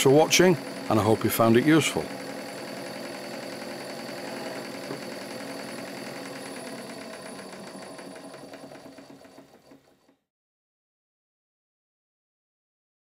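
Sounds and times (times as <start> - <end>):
small steam engine running: 0.0 - 10.2.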